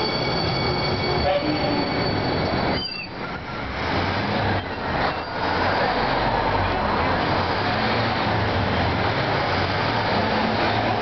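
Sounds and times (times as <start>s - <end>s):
brief falling brake squeal: 0.0s - 3.2s
train wheels rumbling on rail: 0.0s - 11.0s.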